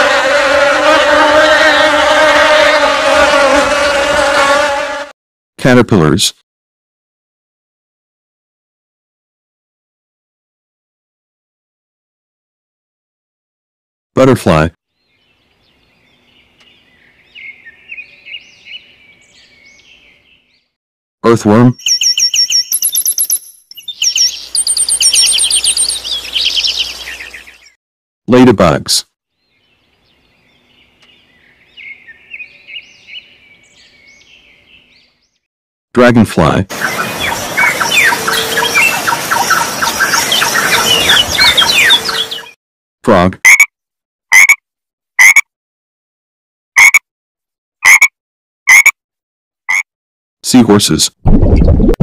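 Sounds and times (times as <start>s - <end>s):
small bird chirping: 21.7s - 27.7s, 36.8s - 42.6s
frog croaking: 43.5s - 43.7s, 44.3s - 44.6s, 45.2s - 45.4s, 46.8s - 47.0s, 47.8s - 48.1s, 48.7s - 48.9s.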